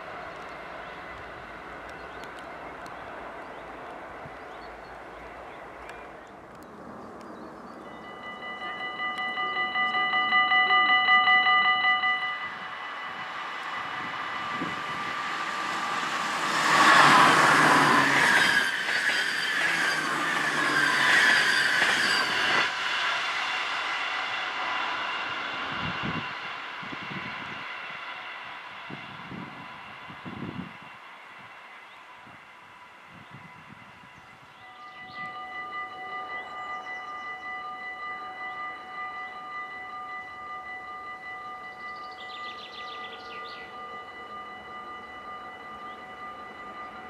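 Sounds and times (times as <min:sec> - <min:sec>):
train passing at speed: 0:00.0 - 0:47.0
pulsing warning tone: 0:07.9 - 0:22.7, 0:34.7 - 0:47.0
whining squeal: 0:07.9 - 0:28.2.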